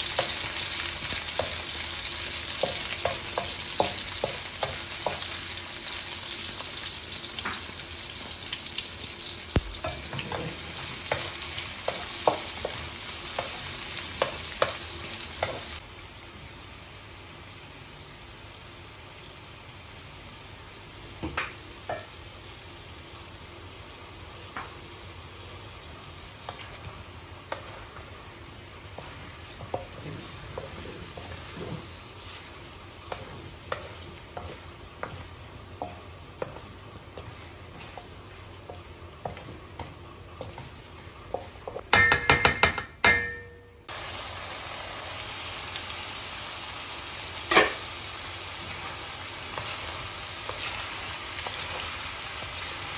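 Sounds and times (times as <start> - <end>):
onions sizzling in oil: 0.0 - 42.1, 43.2 - 52.9
chicken frying: 0.0 - 52.9
wooden spatula knocking pan: 2.5 - 5.3, 39.3 - 43.6.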